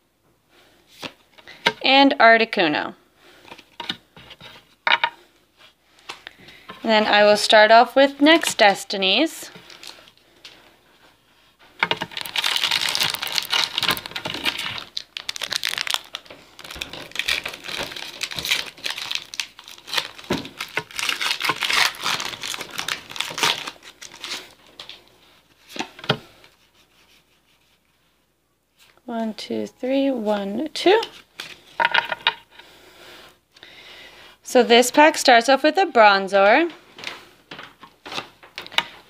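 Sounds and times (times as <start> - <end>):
wrapper rustling: 9.3 - 10.2, 11.9 - 25.8
foil wrapper tearing and crinkling: 11.9 - 25.0.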